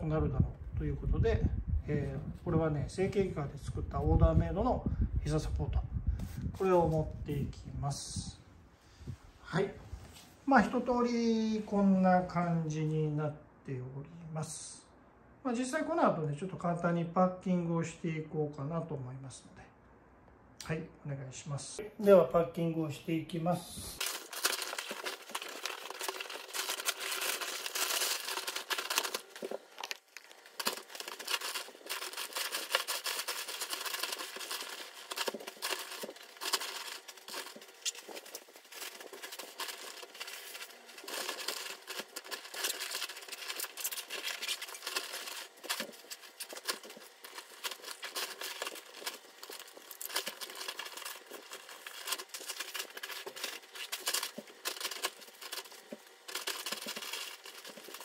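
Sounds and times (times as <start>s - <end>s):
fast crinkling of gear packing: 23.9s - 58.0s.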